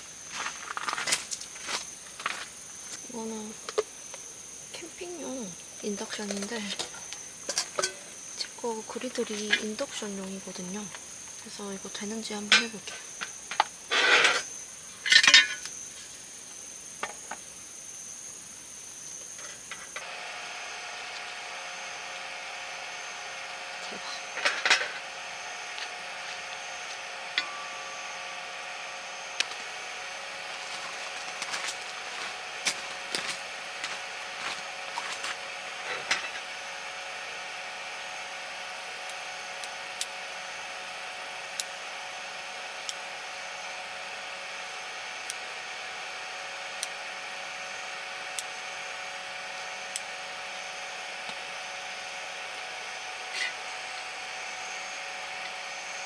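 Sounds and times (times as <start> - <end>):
induction cooktop hum and whine: 0.0 - 56.0
utensils scraping on griddle: 6.2 - 8.1, 12.5 - 15.7, 24.4 - 25.0, 35.0 - 36.5.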